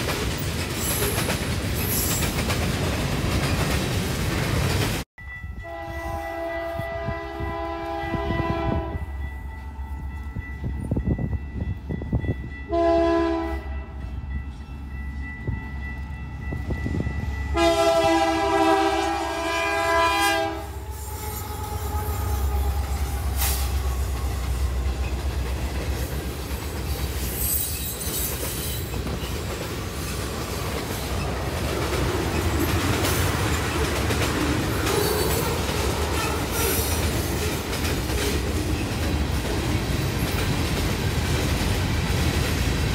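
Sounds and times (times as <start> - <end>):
freight train rumbling past: 0.0 - 42.9
locomotive air horn blasts: 5.6 - 9.8, 12.7 - 14.0, 17.5 - 24.8
wheels clacking over rail joints: 23.5 - 42.9.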